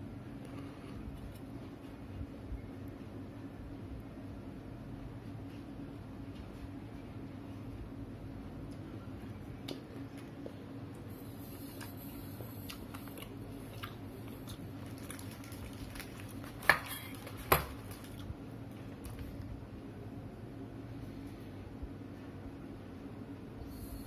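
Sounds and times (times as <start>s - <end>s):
low steady hum: 0.0s - 24.0s
paper box and plastic bag rustling: 14.8s - 18.3s.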